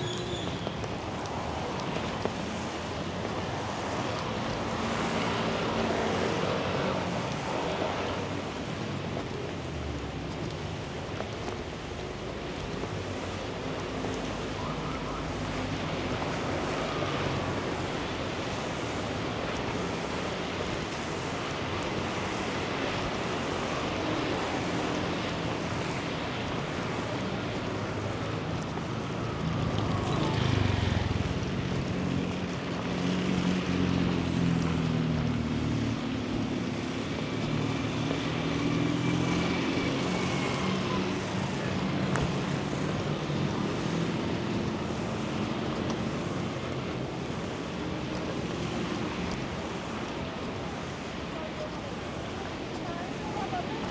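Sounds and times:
rain hissing: 0:39.0 - 0:53.9.

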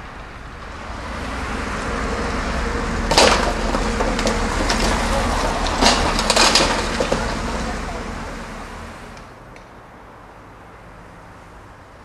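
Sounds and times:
excavator diesel engine running: 0:00.0 - 0:09.3
debris knocking: 0:03.0 - 0:08.0
building material crashing: 0:03.0 - 0:08.3.

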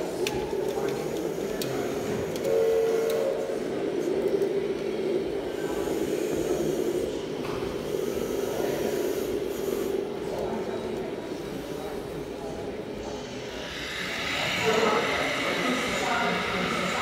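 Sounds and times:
short horn-like tone: 0:02.4 - 0:03.4.

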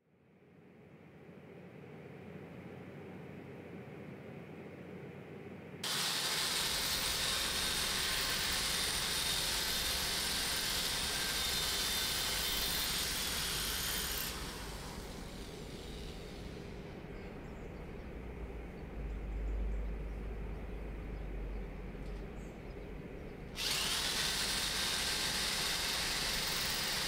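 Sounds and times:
power drill boring into wall: 0:05.8 - 0:16.6, 0:23.6 - 0:27.0.

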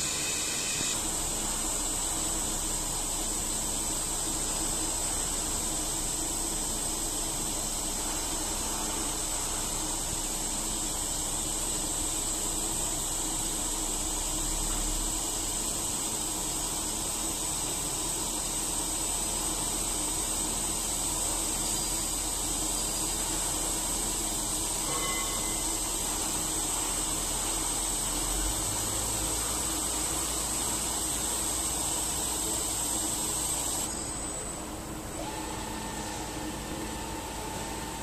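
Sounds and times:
milling machine cutting metal: 0:00.0 - 0:01.0
thin high whine: 0:00.0 - 0:02.1, 0:24.0 - 0:28.5, 0:33.6 - 0:38.0.

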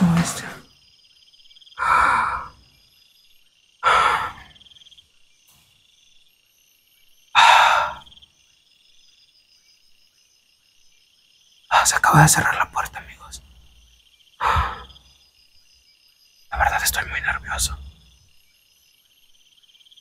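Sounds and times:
crickets trilling: 0:00.0 - 0:20.0
man sighing heavily: 0:07.4 - 0:08.0.

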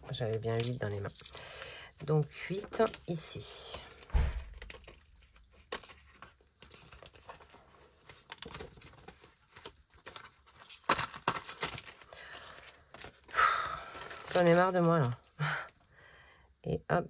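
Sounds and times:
paper rustling and crinkling: 0:02.0 - 0:15.4.

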